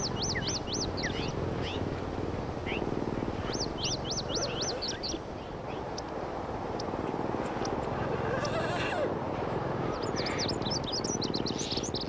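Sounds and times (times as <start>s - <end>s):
songbird whistling notes: 0.0s - 1.9s, 2.6s - 5.3s
bird chirps: 0.0s - 5.3s
steady background hiss: 0.0s - 7.8s.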